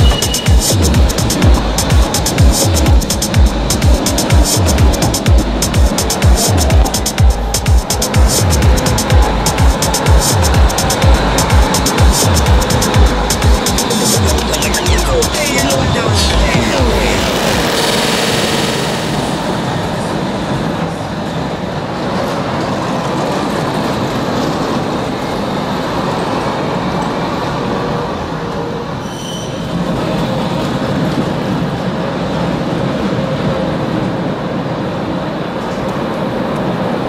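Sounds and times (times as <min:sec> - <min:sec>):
tram wheels rumbling on rails: 0:00.0 - 0:37.0
brief high tone: 0:13.9 - 0:20.2.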